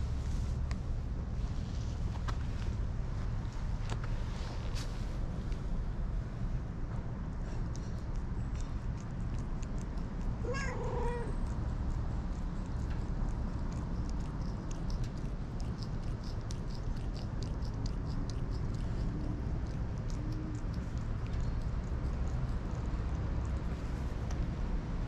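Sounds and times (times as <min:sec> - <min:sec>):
cat meowing: 0:10.4 - 0:11.4
cat licking clicks: 0:11.4 - 0:24.4.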